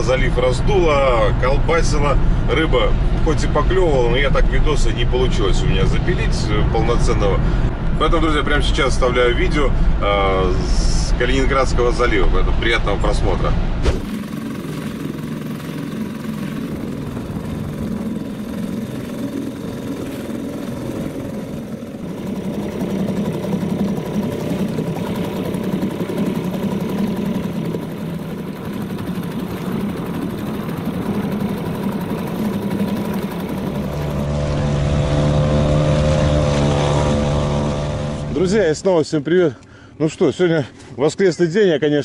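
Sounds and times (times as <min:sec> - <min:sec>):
engine running: 0:00.0 - 0:38.8.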